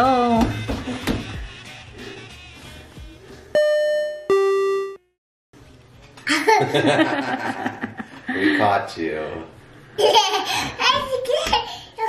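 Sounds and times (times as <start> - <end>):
toddler laughing: 10.0 - 11.8.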